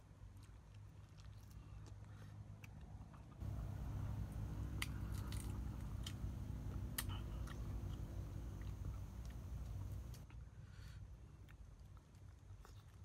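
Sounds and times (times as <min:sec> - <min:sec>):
person chewing and crunching: 0:00.2 - 0:10.4
steady low hum: 0:03.4 - 0:10.3
crisp skin and bones cracking: 0:04.8 - 0:06.3.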